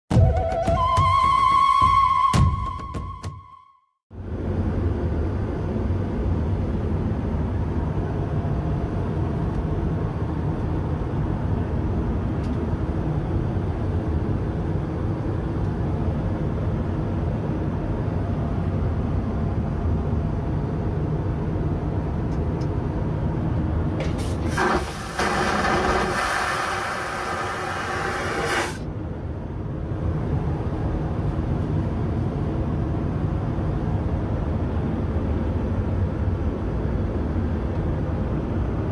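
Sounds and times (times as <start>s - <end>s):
aircraft cabin drone: 4.2s - 38.9s
vacuum toilet flushing: 24.0s - 28.8s.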